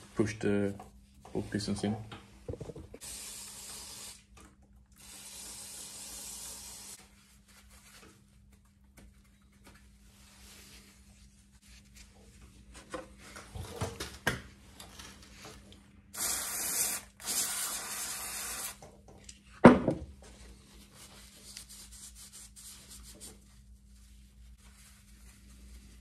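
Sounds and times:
aerosol spray hissing: 0:03.0 - 0:04.2, 0:05.0 - 0:07.0, 0:16.2 - 0:18.8.

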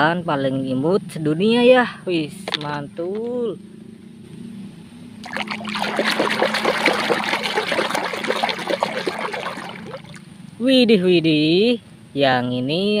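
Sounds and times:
hand splashing soapy water: 0:05.2 - 0:10.2.

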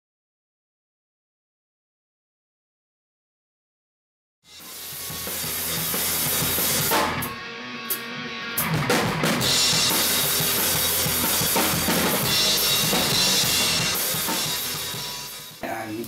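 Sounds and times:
drum kit playing: 0:04.5 - 0:16.0.

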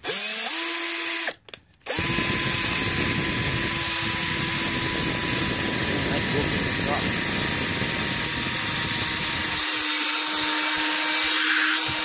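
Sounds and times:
electric drill boring into rubber: 0:00.0 - 0:12.0.

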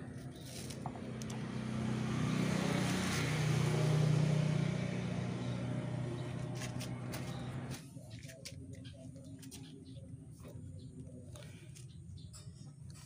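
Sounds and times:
vehicle engine passing by: 0:00.0 - 0:07.8.

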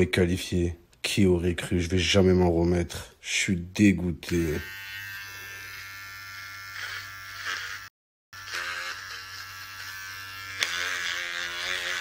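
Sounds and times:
electric hair clipper buzzing: 0:04.3 - 0:12.0.

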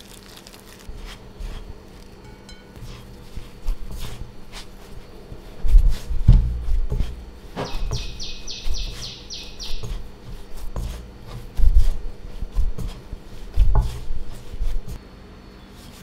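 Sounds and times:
hands kneading dough: 0:00.0 - 0:15.0
high chirps: 0:07.6 - 0:10.1.

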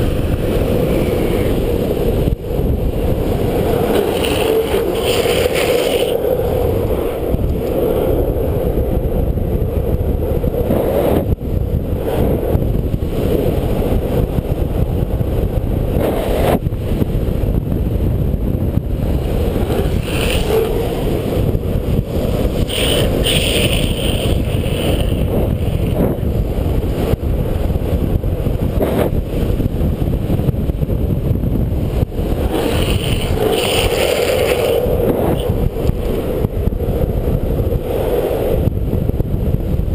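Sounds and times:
gloved hand sliding on road: 0:00.0 - 0:08.6, 0:18.8 - 0:27.7, 0:31.7 - 0:38.7
skateboard wheels rolling on asphalt: 0:00.0 - 0:39.9
wind rushing over microphone: 0:00.0 - 0:39.9.

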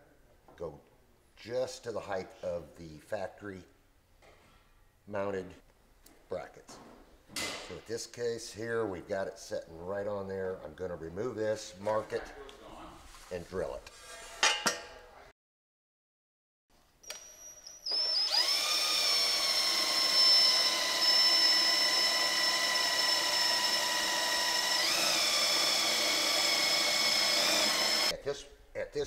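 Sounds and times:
power drill whining: 0:17.0 - 0:28.1.

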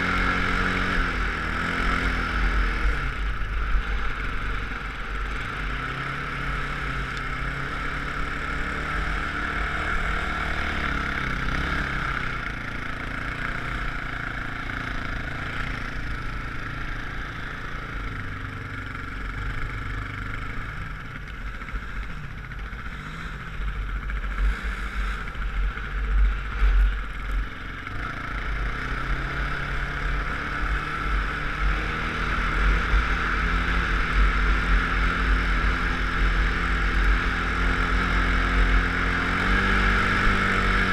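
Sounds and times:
off-road vehicle engine: 0:00.0 - 0:40.9.

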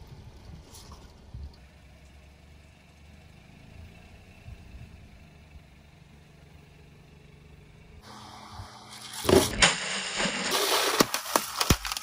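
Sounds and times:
car engine running: 0:00.0 - 0:09.6.

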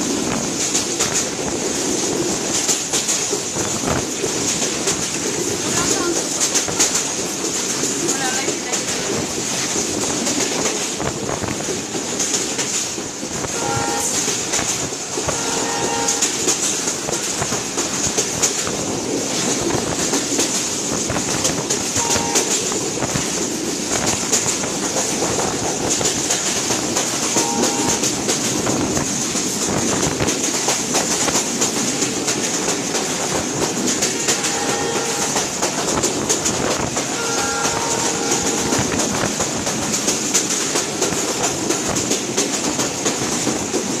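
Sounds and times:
train rumble inside carriage: 0:00.0 - 0:44.0
wheels clattering over rails: 0:00.0 - 0:44.0.

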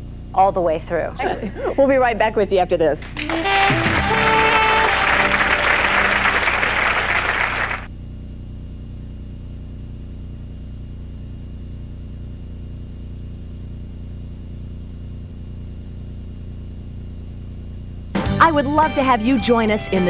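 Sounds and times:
low electrical hum: 0:00.0 - 0:20.0
audience applauding: 0:03.1 - 0:07.9.

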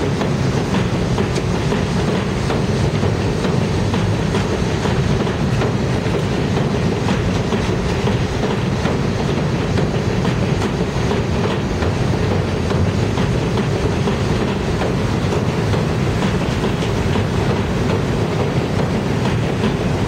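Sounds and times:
train wheels rumbling on rail: 0:00.0 - 0:20.0.

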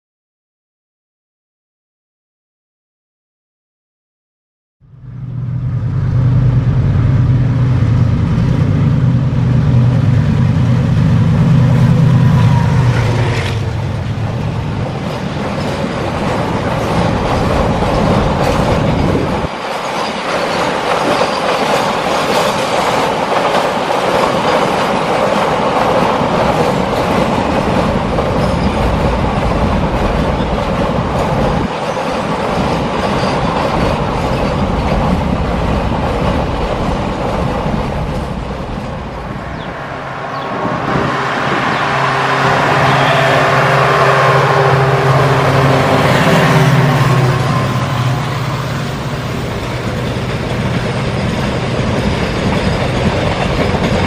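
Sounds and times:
locomotive engine drone: 0:04.8 - 0:20.9, 0:25.4 - 0:54.0
freight wagons clattering on rails: 0:14.7 - 0:38.8, 0:49.4 - 0:54.0.

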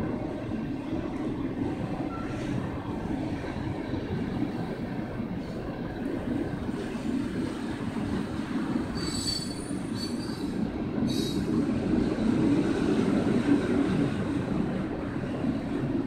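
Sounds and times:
freight train rumbling past: 0:00.0 - 0:16.0
wheel squeals: 0:08.9 - 0:10.5.

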